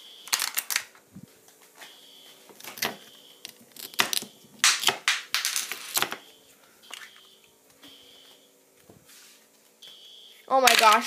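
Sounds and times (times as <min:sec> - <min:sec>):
smoke alarm beep: 0:00.0 - 0:00.4, 0:01.8 - 0:04.4, 0:05.9 - 0:08.6, 0:09.8 - 0:10.5.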